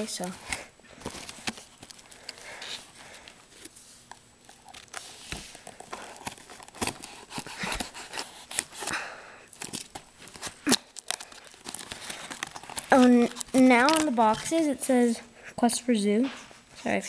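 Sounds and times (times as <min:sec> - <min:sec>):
packaging rustling and clicking: 0:00.2 - 0:14.6
scissors snipping: 0:06.1 - 0:08.9.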